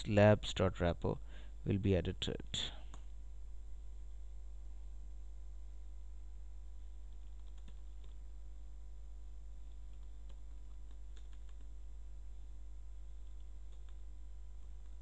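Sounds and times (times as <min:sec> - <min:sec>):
steady low hum: 0:00.0 - 0:15.0
computer keyboard keys clicking: 0:07.1 - 0:08.2, 0:09.7 - 0:11.7, 0:13.2 - 0:14.0.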